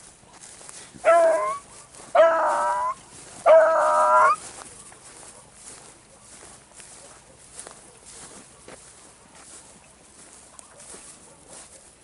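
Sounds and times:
dog baying: 0:01.0 - 0:04.4.

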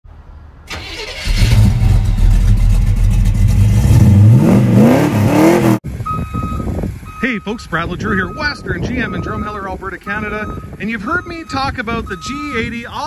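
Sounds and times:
vehicle engine running and revving: 0:01.4 - 0:06.0.

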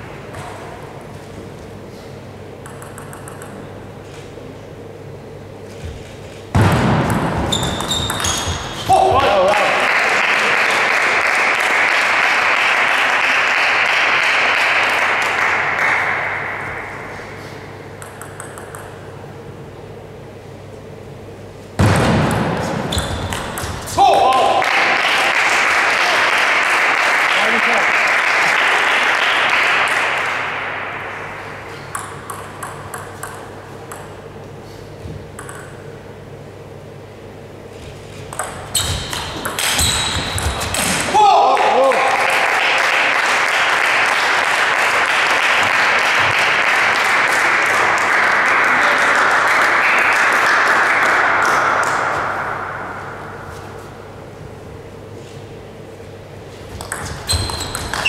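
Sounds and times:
table tennis ball bouncing: 0:02.6 - 0:03.7, 0:06.6 - 0:08.9, 0:17.8 - 0:19.2, 0:21.8 - 0:24.0, 0:31.8 - 0:34.2, 0:35.3 - 0:36.0, 0:38.2 - 0:41.0, 0:56.8 - 0:58.0
table tennis rally clicks: 0:02.6 - 0:04.3, 0:17.9 - 0:19.1, 0:31.8 - 0:34.2, 0:35.3 - 0:36.0, 0:38.3 - 0:41.0, 0:56.8 - 0:58.0
spectators applauding: 0:09.2 - 0:16.6, 0:24.0 - 0:30.6, 0:41.2 - 0:52.1.

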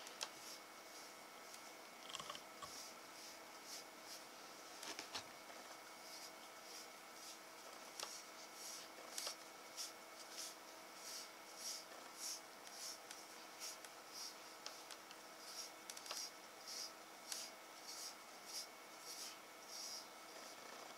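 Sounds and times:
brush swishing through fur: 0:08.1 - 0:20.1.

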